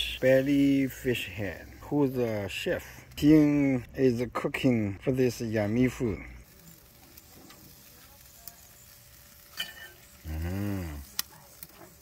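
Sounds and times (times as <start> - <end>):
fish sizzling on a grill: 0.0 - 12.0
spatula clicking on grill grate: 6.6 - 10.2, 11.0 - 12.0
person making drawn-out sound: 10.2 - 11.0.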